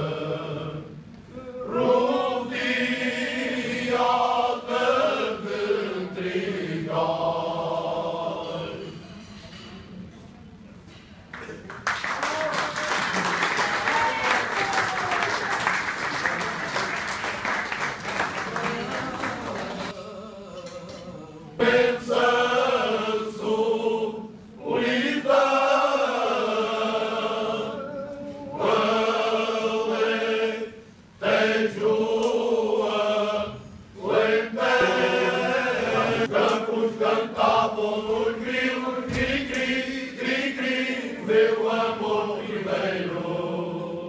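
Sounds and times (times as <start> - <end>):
men's choir singing unaccompanied: 0.0 - 9.1, 18.4 - 44.0.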